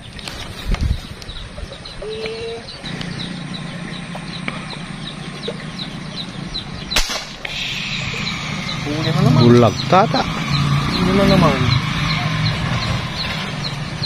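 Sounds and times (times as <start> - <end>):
bird chirping: 0.0 - 14.0
low hum: 2.7 - 14.0.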